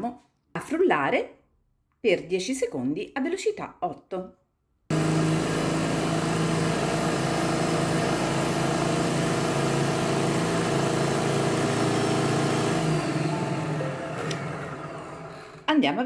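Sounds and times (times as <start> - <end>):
food processor motor blending: 4.9 - 15.8.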